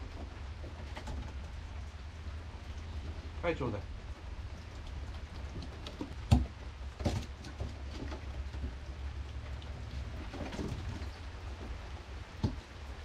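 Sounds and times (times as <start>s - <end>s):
rain on wet deck: 0.0s - 13.0s.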